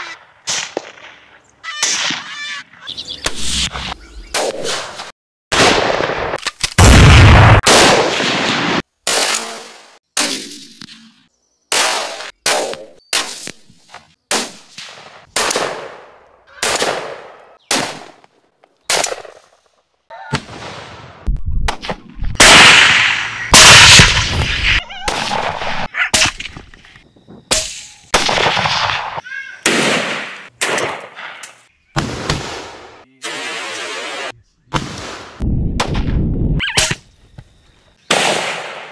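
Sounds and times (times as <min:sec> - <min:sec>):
rifle shots echoing: 0:14.3 - 0:18.2, 0:28.2 - 0:31.2.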